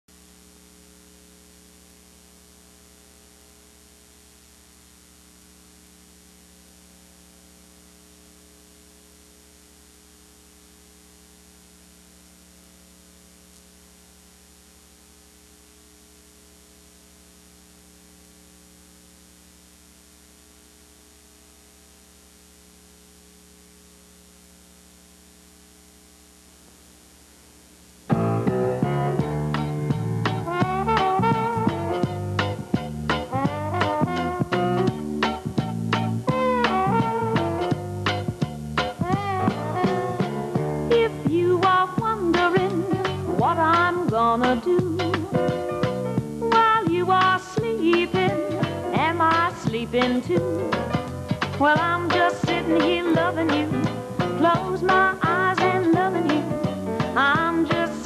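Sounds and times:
electrical mains hum: 0:00.1 - 0:58.0
faint tape hiss: 0:00.1 - 0:58.0
music: 0:28.0 - 0:58.0.

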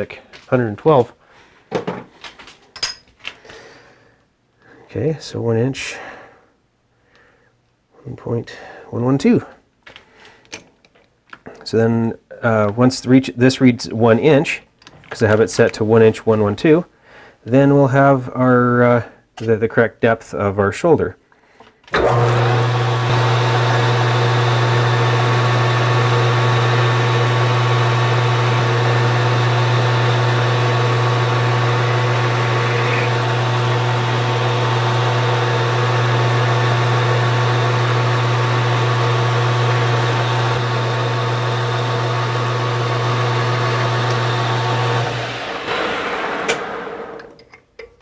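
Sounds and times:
metal lathe running: 0:22.0 - 0:47.3.

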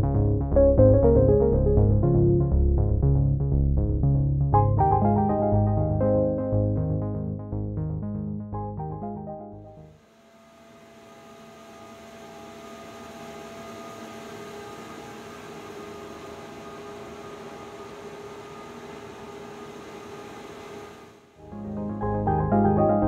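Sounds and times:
machine hum and hiss: 0:10.0 - 0:21.4.

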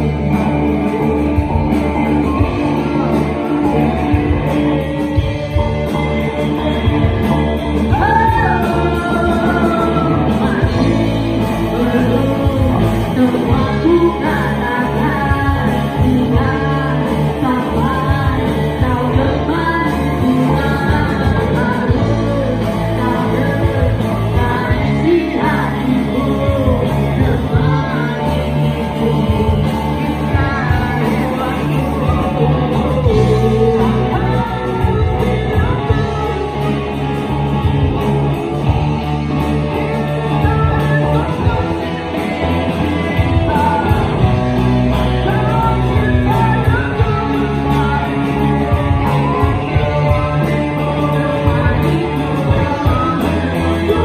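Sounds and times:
person singing: 0:00.0 - 0:54.0
rock band playing live: 0:00.0 - 0:54.0.

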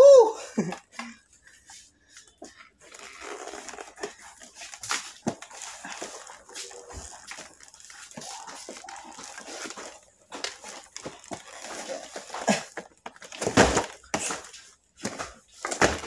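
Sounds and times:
cardboard boxes rustling and scraping: 0:01.5 - 0:16.0.

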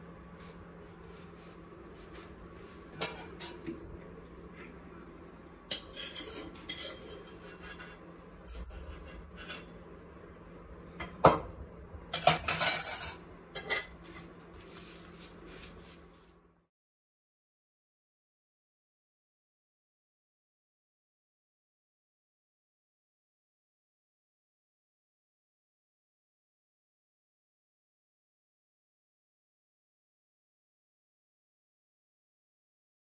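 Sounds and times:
faint steady hum: 0:00.0 - 0:16.7
dishes and cutlery clinking: 0:02.9 - 0:03.8, 0:05.2 - 0:09.8, 0:12.1 - 0:14.4.

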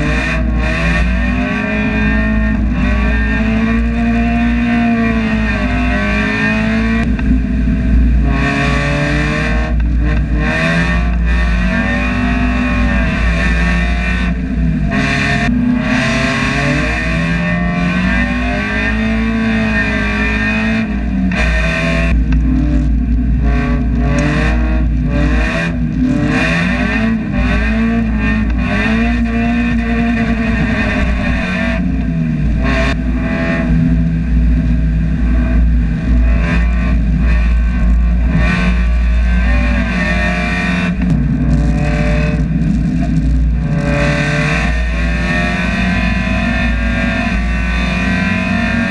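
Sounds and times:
race car engine revving: 0:00.0 - 0:48.9.

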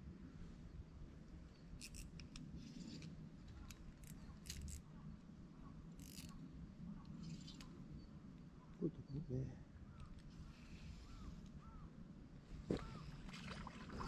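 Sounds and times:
fishing reel clicking: 0:01.8 - 0:02.2, 0:04.0 - 0:04.8, 0:06.0 - 0:06.4.

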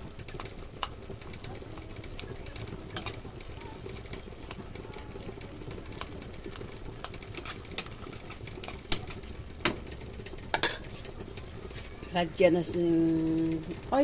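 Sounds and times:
tomatoes simmering in a pan: 0:00.0 - 0:14.0
metal spoon stirring and mashing: 0:02.6 - 0:03.3, 0:05.3 - 0:09.3.

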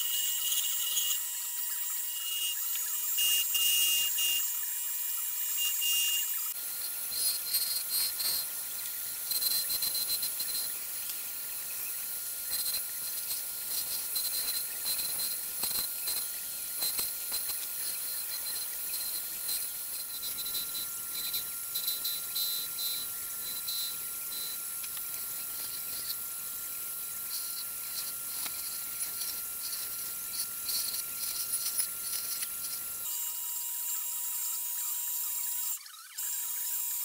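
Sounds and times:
thin steady tone: 0:00.0 - 0:33.1
chisel shaving wood on lathe: 0:06.6 - 0:33.0.

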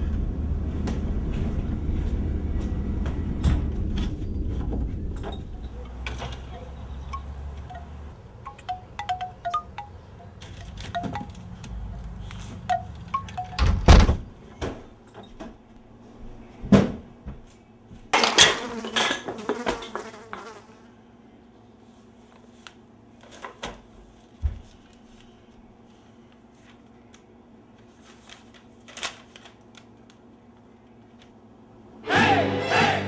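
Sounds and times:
wind chime tinkling: 0:05.6 - 0:13.9
magazine pages rustling: 0:24.2 - 0:31.2.

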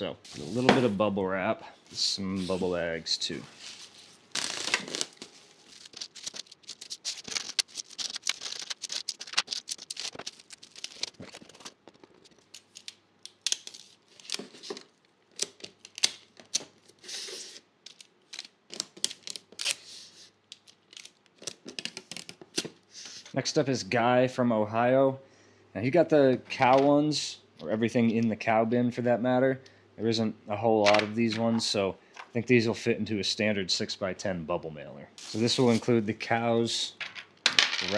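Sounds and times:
bubble wrap rustling: 0:03.5 - 0:22.6, 0:35.2 - 0:35.9.

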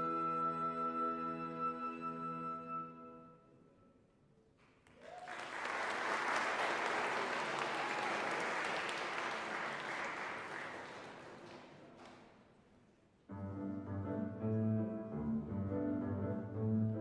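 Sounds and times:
audience applauding: 0:04.6 - 0:12.4.

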